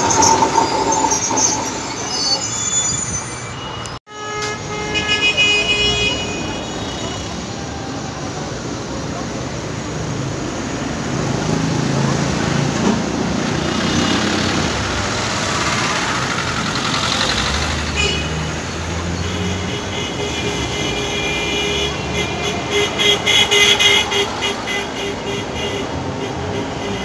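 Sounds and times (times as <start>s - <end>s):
tram rumbling on rails: 0.0s - 4.0s.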